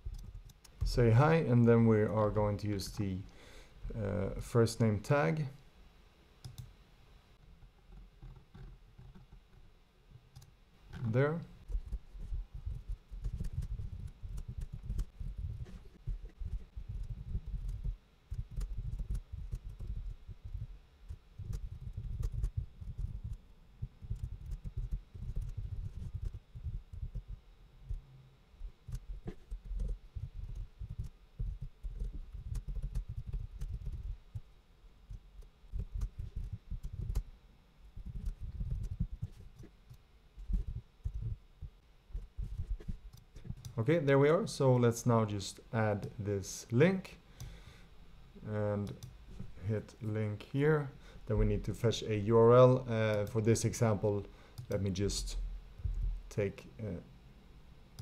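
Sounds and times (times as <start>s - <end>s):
computer keyboard typing: 21.4s - 23.4s, 29.6s - 34.1s.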